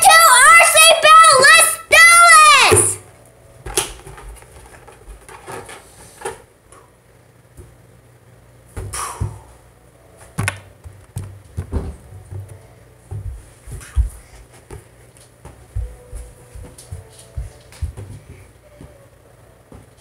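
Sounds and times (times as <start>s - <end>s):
light knocks and bumps: 10.4s - 19.0s.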